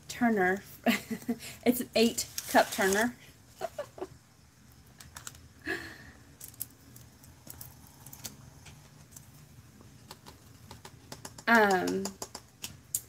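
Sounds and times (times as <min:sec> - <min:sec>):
glitter rattling on paper plate: 0:02.2 - 0:03.9.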